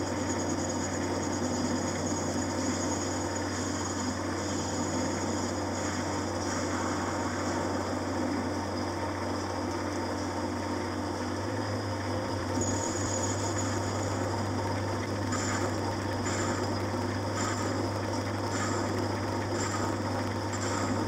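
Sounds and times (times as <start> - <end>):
lathe motor hum: 0.0 - 21.0
cutting tool hiss: 12.5 - 21.0.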